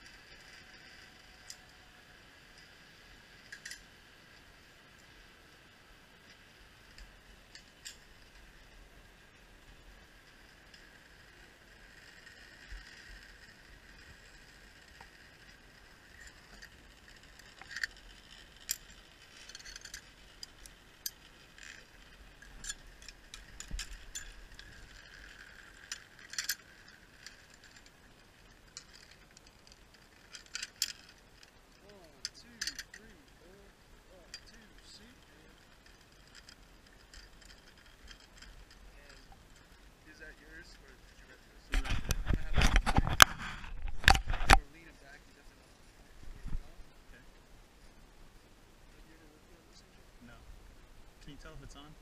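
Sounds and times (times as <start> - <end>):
metal carabiners clinking: 0.0 - 4.4, 9.7 - 44.7
faint steady hiss: 0.0 - 52.0.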